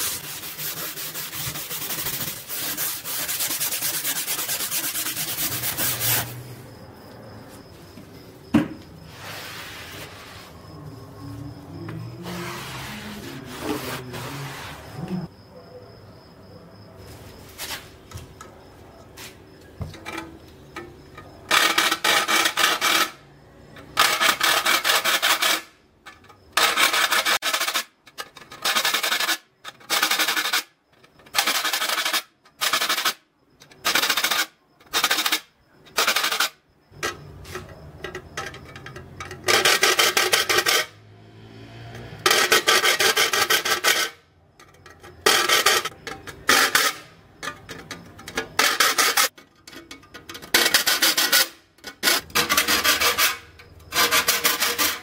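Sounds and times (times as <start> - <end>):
metal file rasping on saw teeth: 0.0 - 6.3, 50.6 - 55.0.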